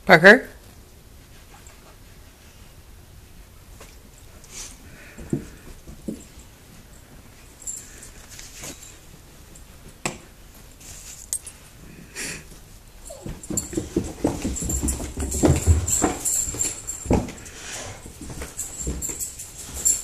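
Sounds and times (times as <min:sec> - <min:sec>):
dog paws thumping down stairs: 0:03.7 - 0:10.8, 0:12.4 - 0:20.0.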